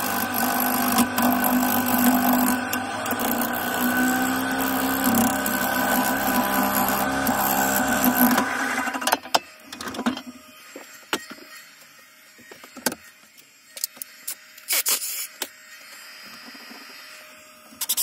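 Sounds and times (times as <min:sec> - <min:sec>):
wood lathe cutting: 0:00.0 - 0:09.2.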